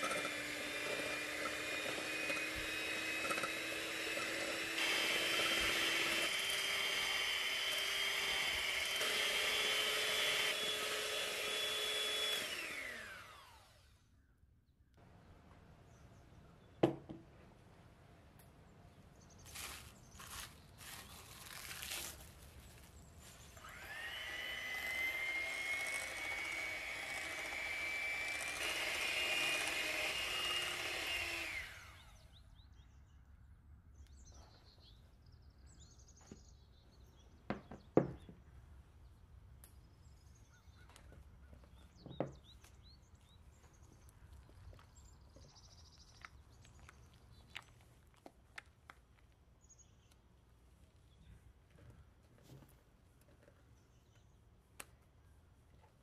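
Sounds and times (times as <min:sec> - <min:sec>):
electric hand mixer whining: 0:00.0 - 0:13.9, 0:23.5 - 0:32.1.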